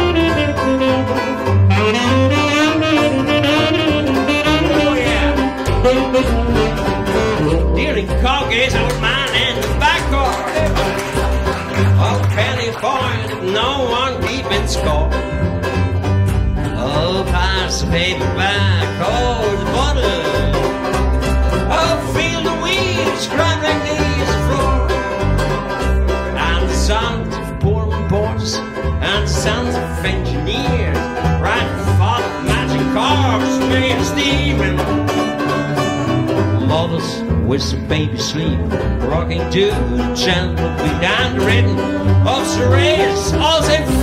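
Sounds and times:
woodwind solo melody: 0:00.0 - 0:07.8
banjo strumming: 0:00.0 - 0:44.0
plucked double bass: 0:00.0 - 0:44.0.

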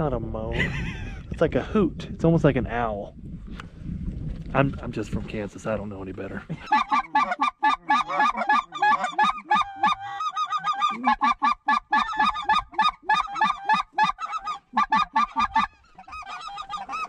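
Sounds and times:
geese honking: 0:06.6 - 0:17.0.

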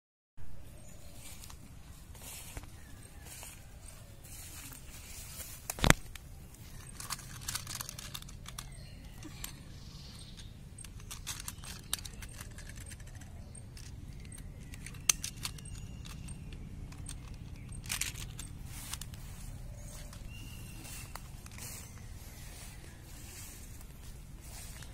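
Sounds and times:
plastic toy clicking: 0:05.7 - 0:19.2.

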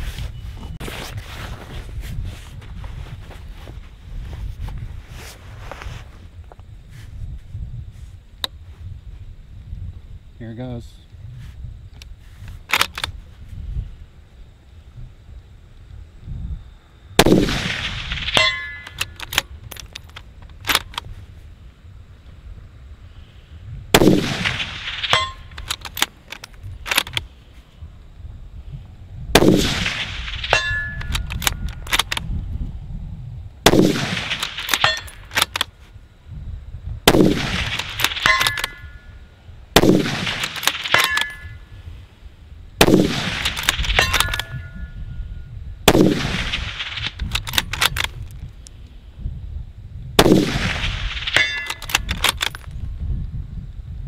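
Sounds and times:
bolt action metallic clicks: 0:12.0 - 0:13.2, 0:18.3 - 0:21.1, 0:25.0 - 0:27.2, 0:30.4 - 0:32.3, 0:34.3 - 0:35.7, 0:37.7 - 0:38.9, 0:40.3 - 0:41.5, 0:43.4 - 0:44.6, 0:46.9 - 0:48.7, 0:51.2 - 0:52.8
rifle shots: 0:17.2 - 0:19.4, 0:23.9 - 0:26.1, 0:29.3 - 0:32.2, 0:33.6 - 0:35.7, 0:37.1 - 0:39.1, 0:39.8 - 0:41.6, 0:42.8 - 0:44.8, 0:45.9 - 0:48.1, 0:50.2 - 0:52.6
short metallic ring: 0:18.4 - 0:19.0, 0:25.1 - 0:25.5, 0:30.5 - 0:31.2, 0:44.0 - 0:45.2, 0:51.4 - 0:51.8.

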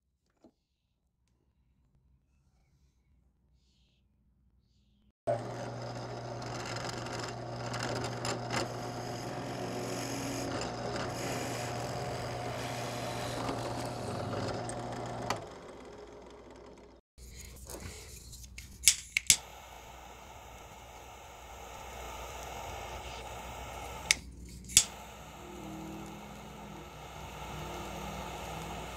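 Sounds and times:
drill press motor humming: 0:05.3 - 0:17.0, 0:19.3 - 0:28.9
sharp clicks: 0:18.6 - 0:19.9, 0:20.5 - 0:25.4.

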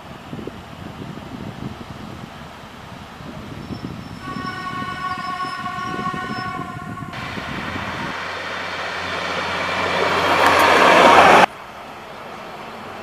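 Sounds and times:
rumble of approaching train: 0:00.0 - 0:13.0
train horn blast: 0:04.2 - 0:08.2.

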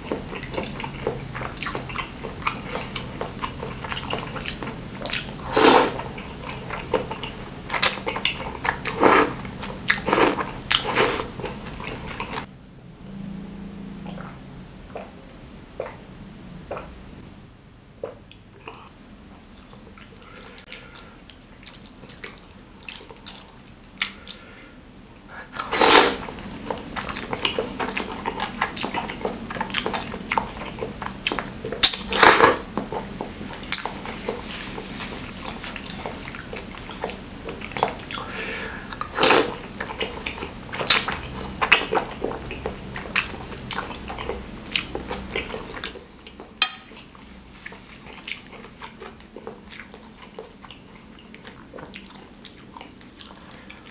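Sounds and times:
wet chewing: 0:00.0 - 0:12.5, 0:25.7 - 0:53.9
noodle slurps: 0:05.1 - 0:08.1, 0:08.7 - 0:12.5, 0:25.6 - 0:30.8, 0:31.8 - 0:32.7, 0:39.0 - 0:42.4.

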